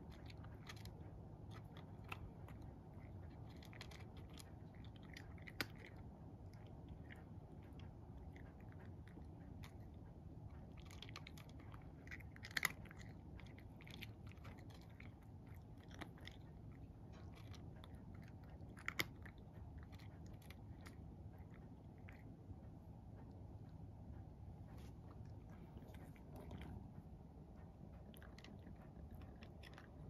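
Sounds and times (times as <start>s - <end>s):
cat chewing: 0.0s - 30.0s.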